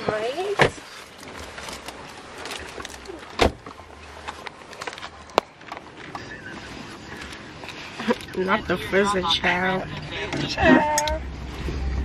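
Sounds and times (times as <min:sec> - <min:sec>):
rustling and handling noise: 0:00.7 - 0:08.7.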